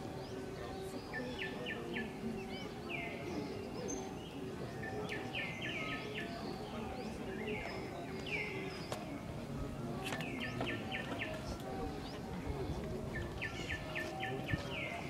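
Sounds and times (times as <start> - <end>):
birds chirping: 0.0 - 9.2, 10.1 - 15.0
low background hubbub: 0.0 - 15.0.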